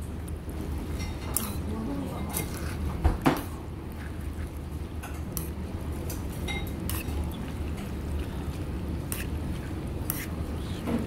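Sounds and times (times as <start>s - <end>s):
steady low hum: 0.0s - 11.0s
dishes and utensils clinking: 0.9s - 3.6s, 5.0s - 8.0s.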